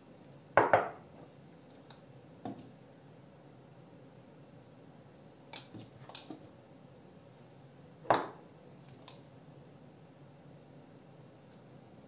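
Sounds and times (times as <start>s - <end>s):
jar set down on countertop: 0.6s - 1.0s, 8.1s - 8.4s
spoon clinking against glass jar: 5.5s - 6.4s.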